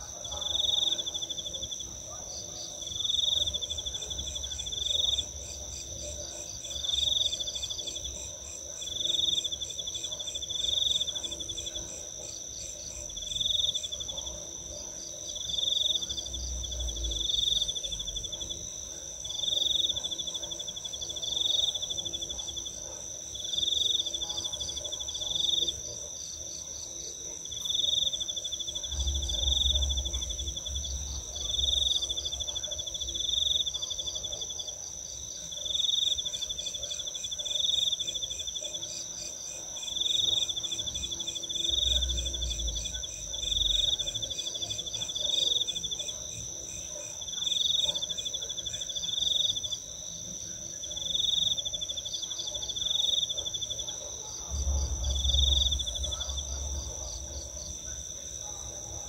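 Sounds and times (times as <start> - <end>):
insect steady high trill: 47.2 - 59.0.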